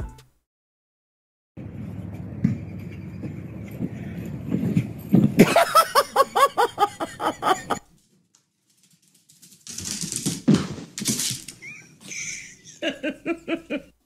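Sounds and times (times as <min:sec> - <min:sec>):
person laughing: 0:05.4 - 0:07.8, 0:11.6 - 0:14.0.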